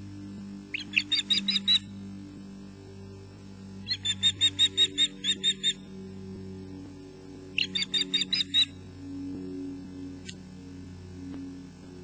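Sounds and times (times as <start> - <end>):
osprey alarm calls: 0.7 - 2.0, 3.8 - 5.9, 7.5 - 8.9.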